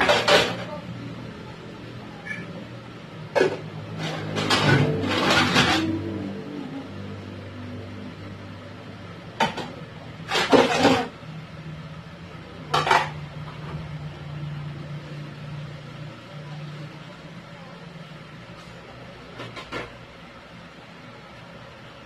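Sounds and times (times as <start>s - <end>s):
dishes clinking and clattering: 0.0s - 0.9s, 3.3s - 6.3s, 9.4s - 11.2s, 12.6s - 13.8s, 19.3s - 20.0s.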